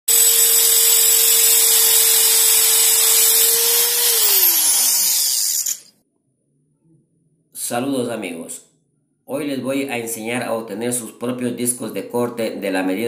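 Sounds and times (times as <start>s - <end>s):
electric drill motor whine: 0.1s - 5.9s.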